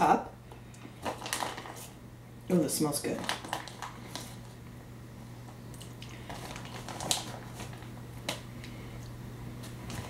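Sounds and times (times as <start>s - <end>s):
steady low hum: 0.0s - 10.0s
plastic bag rustling: 0.8s - 2.0s, 3.0s - 4.6s, 6.0s - 8.4s, 9.6s - 10.0s.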